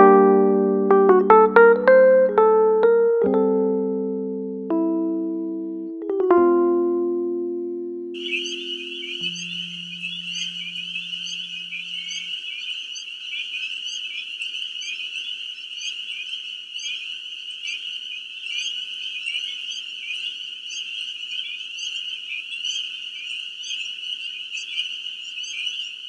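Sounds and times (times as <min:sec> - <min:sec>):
frog chorus trilling: 0:08.2 - 0:26.0.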